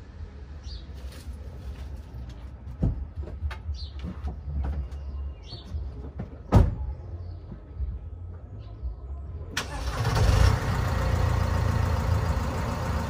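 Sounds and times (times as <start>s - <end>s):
van engine starting and rumbling: 9.5s - 13.0s.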